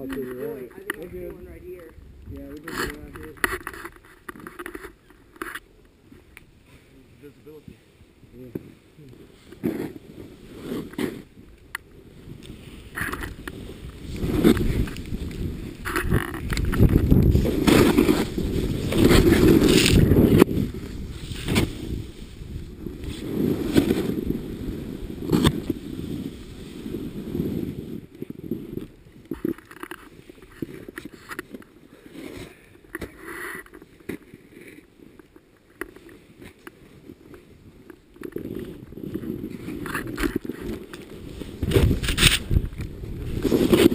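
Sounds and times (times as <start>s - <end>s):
snowboard scuffs: 8.5s - 11.5s, 12.2s - 43.9s
snowboard sliding through powder snow: 8.8s - 29.2s, 38.4s - 43.9s.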